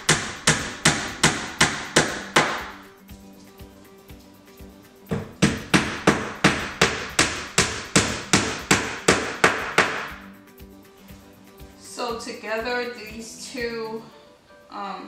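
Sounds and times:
hammer driving nail: 0:00.0 - 0:02.8, 0:05.1 - 0:10.2.

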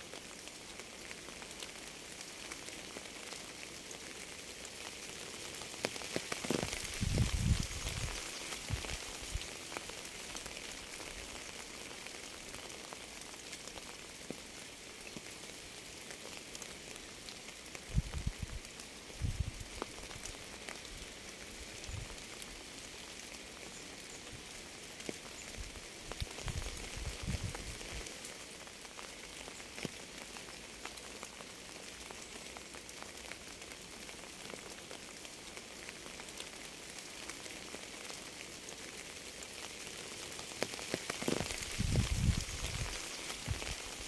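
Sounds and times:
steady rain: 0:00.0 - 0:44.0.

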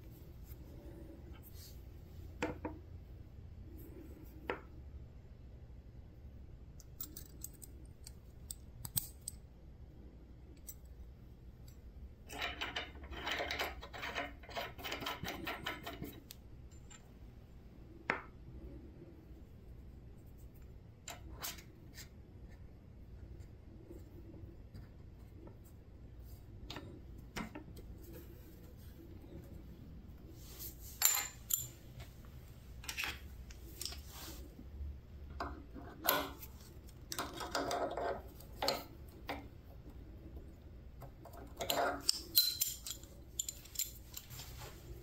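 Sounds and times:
metal collet parts clicking: 0:06.8 - 0:09.5, 0:31.0 - 0:32.1, 0:35.4 - 0:39.4, 0:41.2 - 0:44.4.

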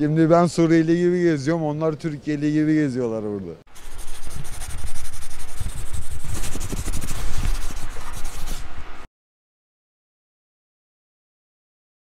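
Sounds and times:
scratchy rubbing noise: 0:03.7 - 0:08.7.

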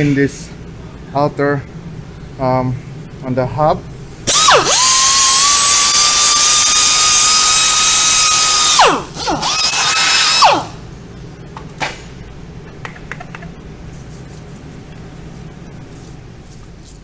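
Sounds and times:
air grinder whining: 0:04.3 - 0:10.8.

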